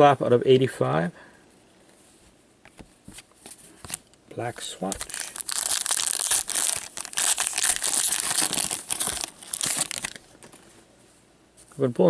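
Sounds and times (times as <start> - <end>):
foil wrapper tearing and crinkling: 4.8 - 10.2.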